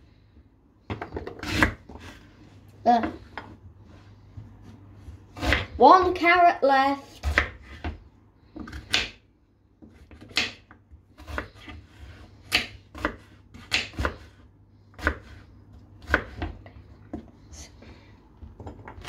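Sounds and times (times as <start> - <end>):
knife chopping on cutting board: 7.2 - 8.0, 9.9 - 14.4, 16.0 - 16.6.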